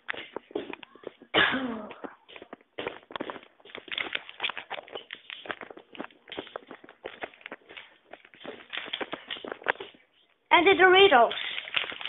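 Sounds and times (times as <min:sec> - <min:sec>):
foil snack bag crinkling: 0:02.8 - 0:10.0, 0:10.8 - 0:12.0.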